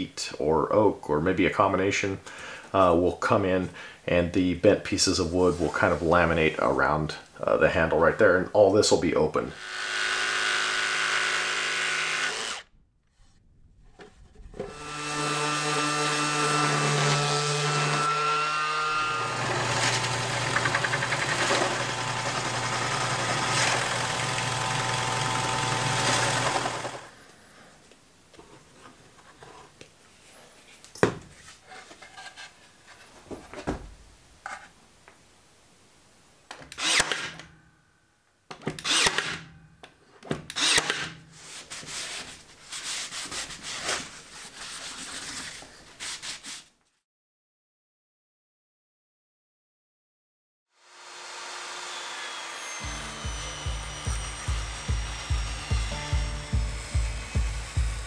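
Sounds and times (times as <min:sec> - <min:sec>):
jigsaw cutting plywood: 0:09.5 - 0:12.7, 0:14.6 - 0:27.1, 0:50.8 - 0:58.0
drill press running: 0:16.9 - 0:27.1, 0:51.3 - 0:58.0.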